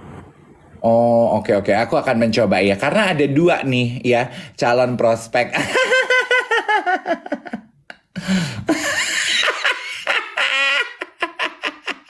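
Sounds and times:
men laughing: 0:05.6 - 0:12.0.

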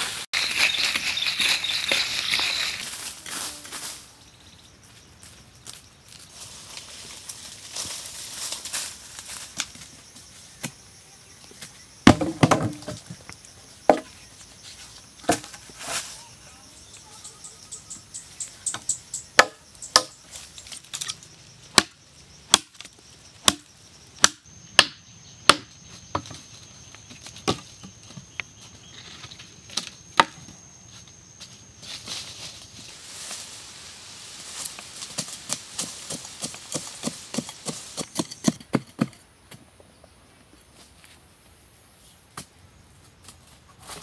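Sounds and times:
high insect whine: 0:00.1 - 0:42.8
logs dropped on dirt: 0:11.6 - 0:14.3, 0:15.2 - 0:16.0, 0:25.5 - 0:28.4
sharp wooden knocks: 0:12.0 - 0:13.0, 0:13.9 - 0:14.1, 0:19.4 - 0:20.1, 0:24.2 - 0:26.4.

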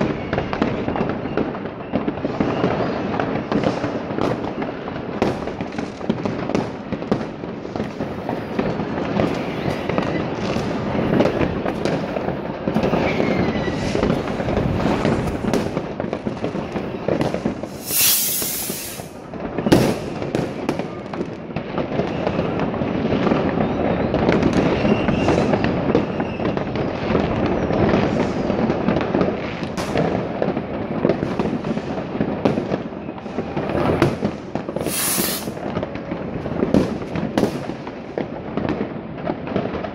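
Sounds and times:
firework whistles: 0:00.0 - 0:04.9, 0:09.2 - 0:11.4, 0:12.8 - 0:15.3, 0:16.7 - 0:20.1, 0:23.5 - 0:28.4, 0:34.7 - 0:35.6
fireworks crackling and banging: 0:00.0 - 0:39.9
firework hiss: 0:17.6 - 0:19.2, 0:34.8 - 0:35.6.

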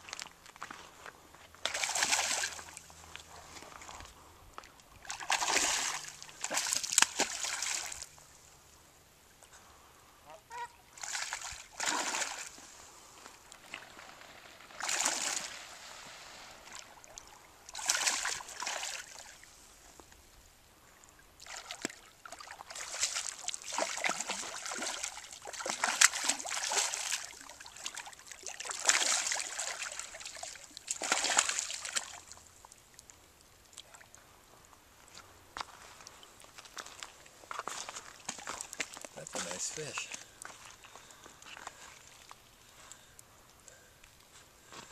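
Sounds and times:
fish thrashing and splashing: 0:01.6 - 0:02.8, 0:05.0 - 0:08.1, 0:11.0 - 0:12.6, 0:14.7 - 0:15.6, 0:16.7 - 0:19.3, 0:21.4 - 0:32.5.

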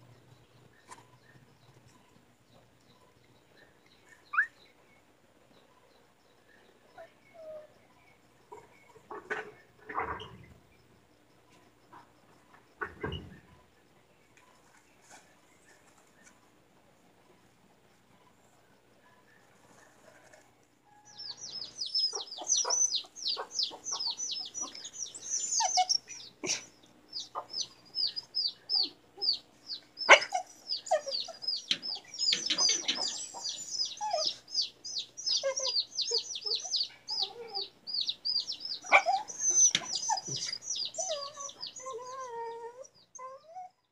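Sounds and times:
bird chirping rapidly: 0:21.1 - 0:26.4, 0:27.1 - 0:41.8.

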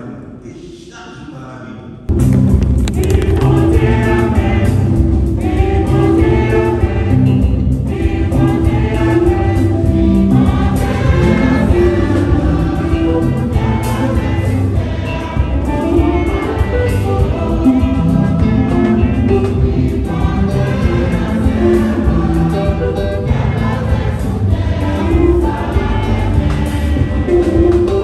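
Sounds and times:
choir singing a hymn: 0:02.9 - 0:28.0.

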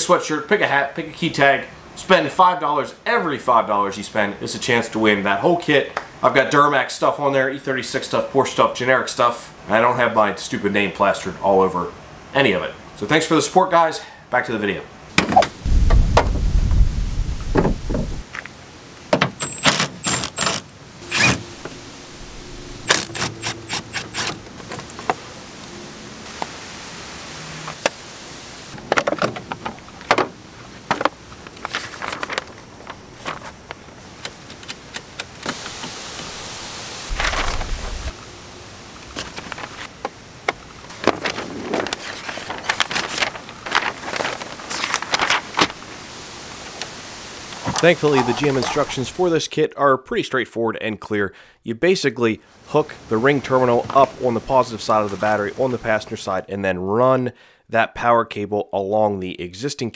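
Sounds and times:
hood raised with low thud: 0:15.2 - 0:18.2
dull thump: 0:17.4 - 0:18.2
paper pages rustling: 0:31.5 - 0:33.8, 0:37.1 - 0:38.1, 0:40.9 - 0:45.8.

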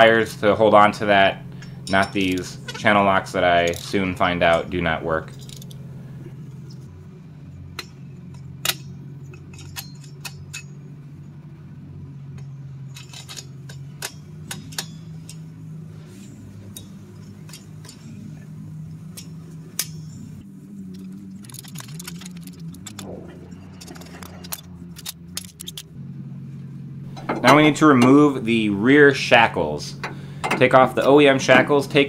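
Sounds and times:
steady low hum: 0:00.0 - 0:32.0
metallic clicks of hand tools: 0:07.8 - 0:10.7, 0:19.1 - 0:20.2, 0:20.9 - 0:23.1, 0:23.8 - 0:25.9.

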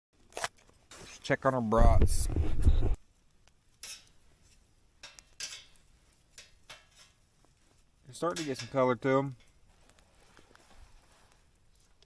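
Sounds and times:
microphone handling rumble: 0:01.8 - 0:03.0
metal tongs on grill grate: 0:03.6 - 0:10.5.

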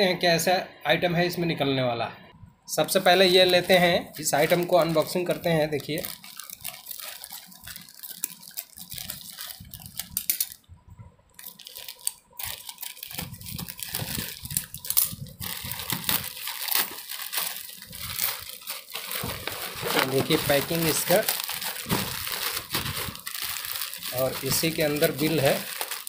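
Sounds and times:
plastic bag crinkling: 0:02.9 - 0:10.7, 0:11.3 - 0:26.0
scissors cutting plastic: 0:05.9 - 0:10.6, 0:11.4 - 0:26.0.

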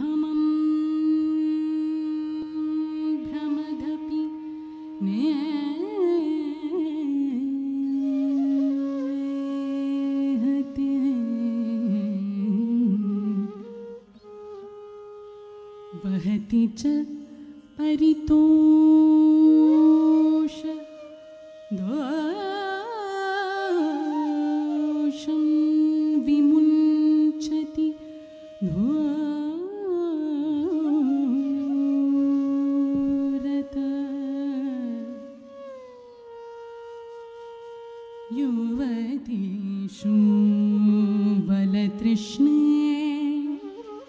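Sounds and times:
solo voice singing ornamented notes: 0:21.8 - 0:35.3.

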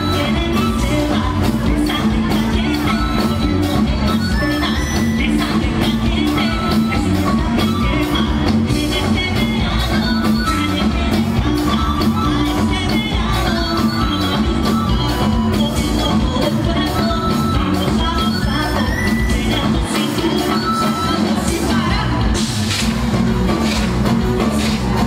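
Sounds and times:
man singing: 0:00.0 - 0:22.4
cumbia band music: 0:00.0 - 0:25.0
drum beat: 0:21.6 - 0:25.0.

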